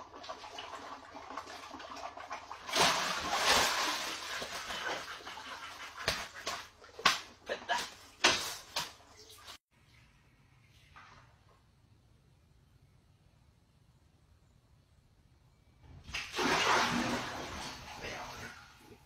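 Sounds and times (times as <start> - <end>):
water splashing: 0.0 - 9.6, 16.1 - 18.8.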